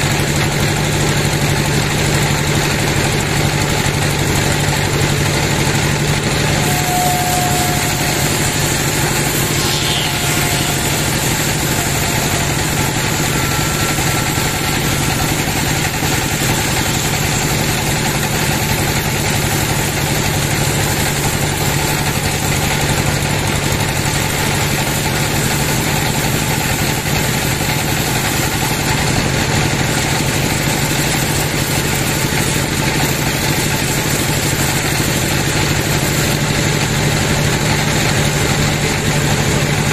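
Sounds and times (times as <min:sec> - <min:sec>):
steady mechanical drone: 0:00.0 - 0:39.9.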